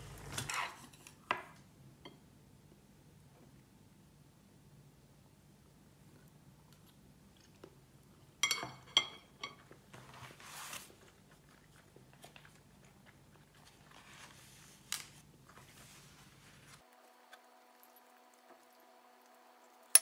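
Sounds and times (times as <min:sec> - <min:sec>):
rustling and handling noise: 0:09.5 - 0:17.6.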